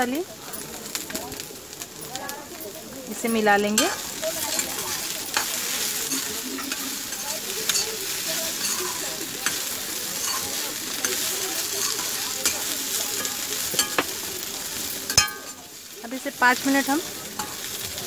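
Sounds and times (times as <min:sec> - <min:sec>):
okra sizzling in oil: 0:00.0 - 0:18.0
spatula striking pan: 0:03.1 - 0:15.7, 0:17.3 - 0:17.9.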